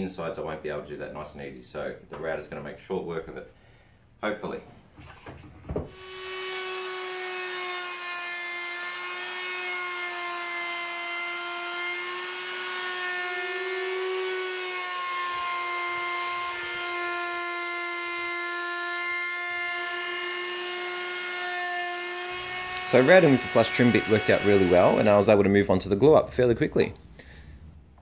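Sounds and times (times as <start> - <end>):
router high-pitched whine: 5.9 - 25.2.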